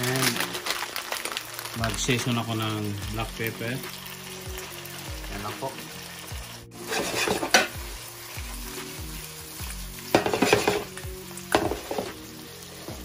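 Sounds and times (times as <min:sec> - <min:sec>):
food sizzling in frying pan: 0:00.0 - 0:13.0
spatula scraping pan: 0:06.7 - 0:07.8, 0:10.1 - 0:10.9.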